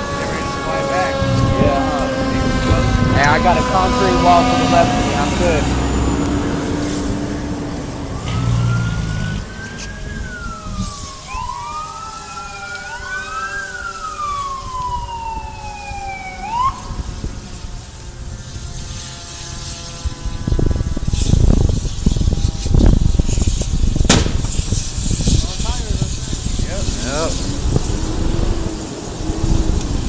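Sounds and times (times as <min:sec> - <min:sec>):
heavy engine rumbling: 0:00.0 - 0:11.0
emergency sirens wailing: 0:00.0 - 0:23.3, 0:24.6 - 0:30.0.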